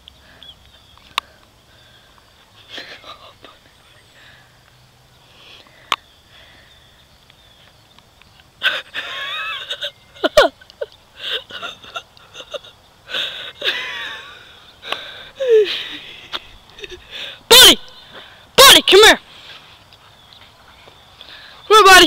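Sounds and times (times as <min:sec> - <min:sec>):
stifled wheezing laughter: 0:02.6 - 0:03.7, 0:08.6 - 0:17.4.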